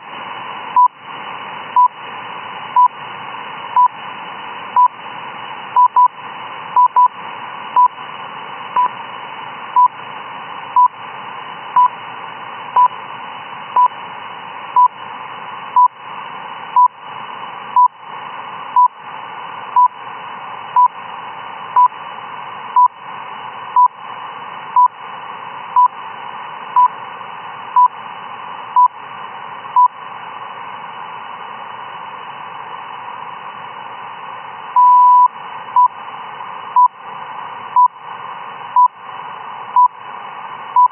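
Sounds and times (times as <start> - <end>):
radio hiss: 0.0 - 40.9
long radio beep: 5.8 - 6.2, 34.8 - 36.0
short radio beeps: 34.8 - 36.0.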